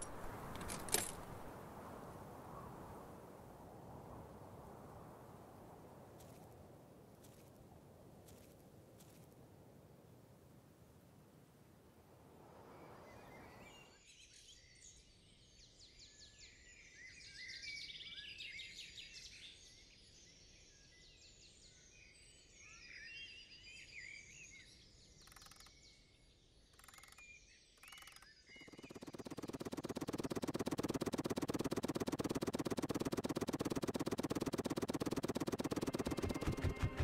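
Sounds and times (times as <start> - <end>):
fast-pulsing buzz: 28.0 - 37.0
hiss bursts: 28.6 - 37.0.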